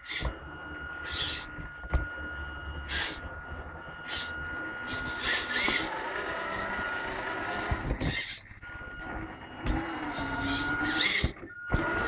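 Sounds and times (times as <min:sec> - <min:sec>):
toy truck running: 0:00.0 - 0:12.0
thin high tone: 0:00.4 - 0:07.0.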